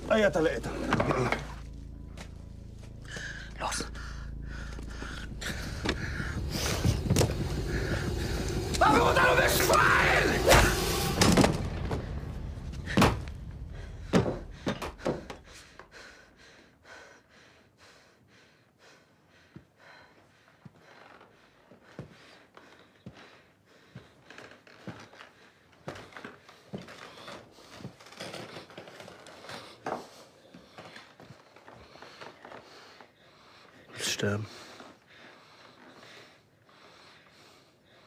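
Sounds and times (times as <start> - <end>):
loud thumps and bangs: 5.4 - 15.8.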